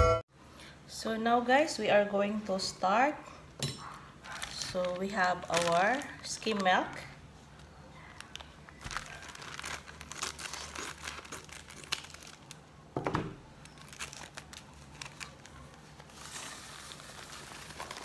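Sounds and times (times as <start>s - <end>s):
plastic bag crinkling: 4.2s - 12.8s, 13.4s - 18.0s.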